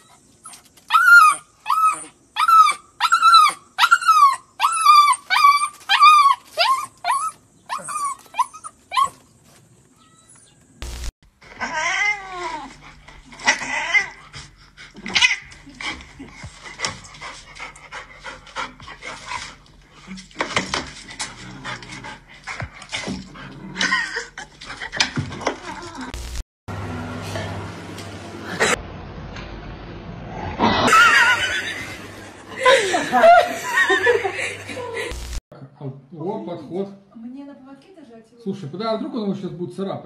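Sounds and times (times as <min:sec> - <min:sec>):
puppy whining and whimpering: 0:00.0 - 0:09.2.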